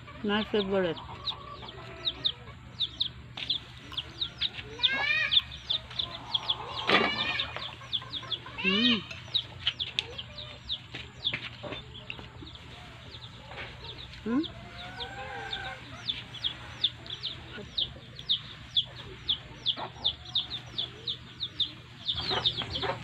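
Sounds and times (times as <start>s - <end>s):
chickens clucking: 0.0s - 23.0s
drawn-out chicken calls: 0.0s - 23.0s.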